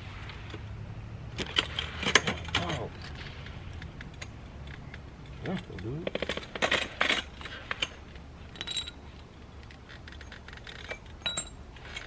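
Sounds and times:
hand tools clicking on metal: 1.4s - 12.0s
metal clink ringing: 6.2s - 9.0s, 10.1s - 12.0s.

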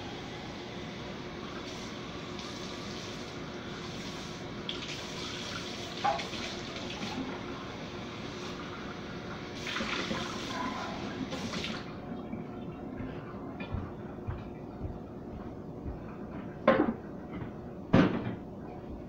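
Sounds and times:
water running from tap: 1.4s - 12.0s.

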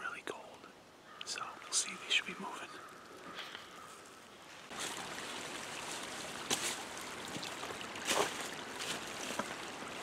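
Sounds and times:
creek running over rocks: 1.3s - 10.0s
footsteps in streambed: 2.8s - 10.0s.

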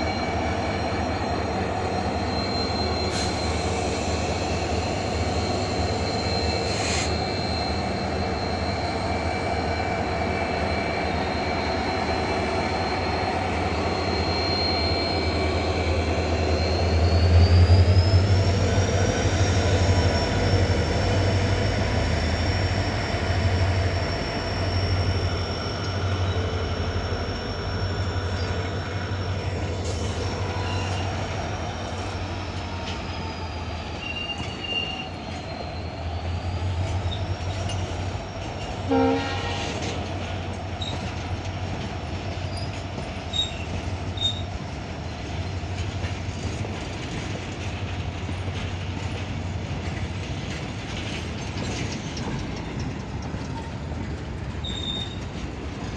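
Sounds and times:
locomotive rumble: 0.0s - 55.9s
wheel squeal: 0.0s - 55.9s
train horn blast: 38.9s - 39.9s.

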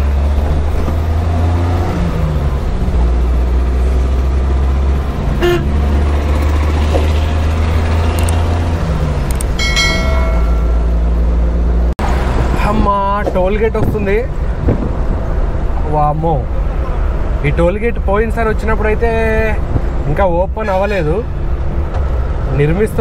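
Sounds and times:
engine drone and road noise: 0.0s - 23.0s
vehicle horn toot: 5.4s - 5.8s.

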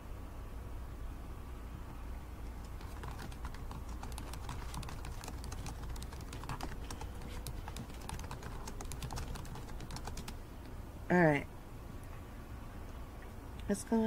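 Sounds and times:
low steady hum: 0.0s - 14.0s
typing on computer keyboard: 2.6s - 10.4s.

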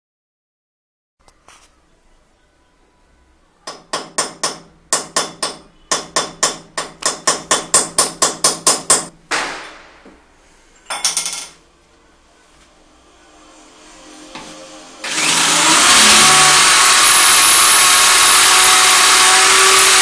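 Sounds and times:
hammer tapping on metal tool: 3.6s - 9.1s.

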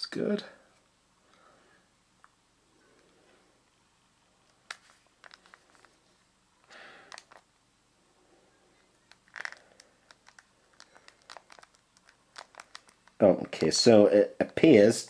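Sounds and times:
handling noise: 9.0s - 13.8s.

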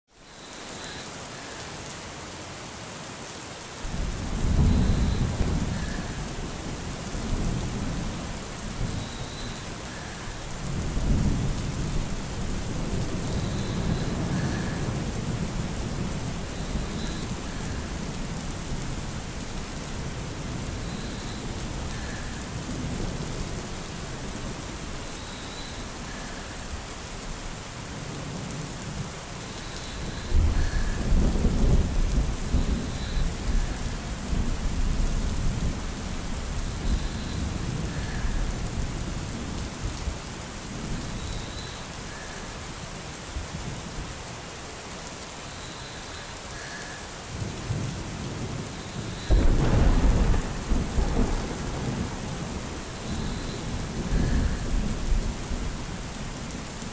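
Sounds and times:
steady rain: 0.1s - 56.9s
thunder rumbling: 3.9s - 19.4s, 30.0s - 40.0s, 47.7s - 56.1s.

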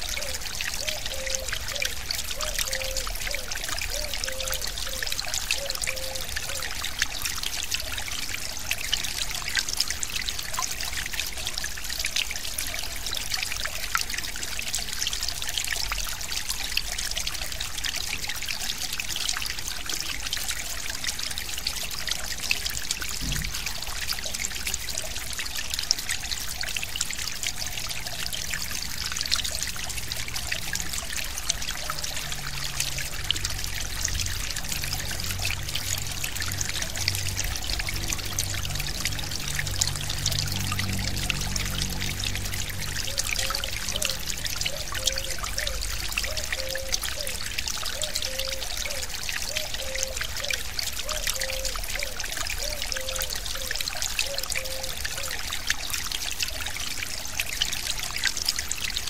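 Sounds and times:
stream flowing: 0.0s - 59.0s.

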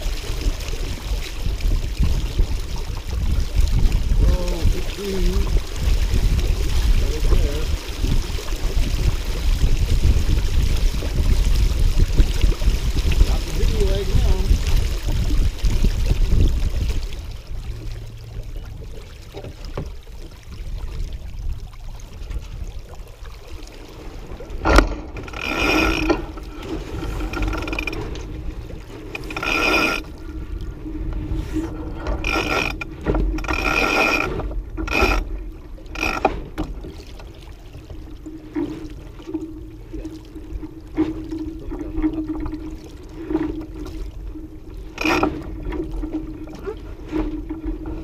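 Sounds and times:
water against hull: 0.0s - 48.0s
wind: 0.0s - 48.0s
winch ratcheting: 24.6s - 30.1s, 31.8s - 35.3s, 35.9s - 36.8s, 45.0s - 46.2s.

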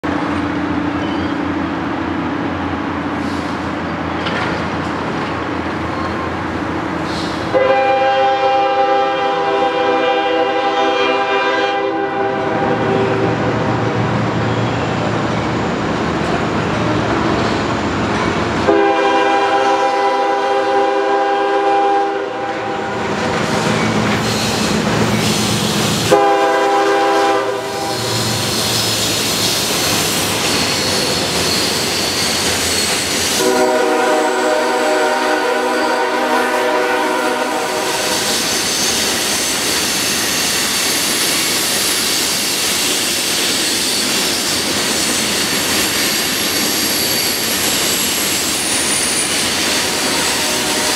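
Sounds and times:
rail cars clattering and hissing: 0.0s - 50.9s
locomotive air horn blasts: 7.5s - 13.7s, 18.6s - 23.1s, 26.0s - 28.3s, 33.4s - 38.3s, 49.8s - 50.9s.

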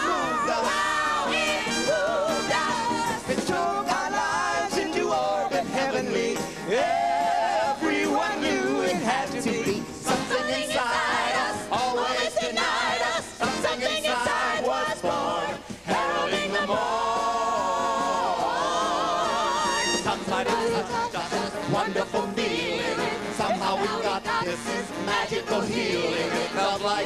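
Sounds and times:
live band playing: 0.0s - 12.2s, 12.8s - 27.0s
group of singers: 0.0s - 27.0s.

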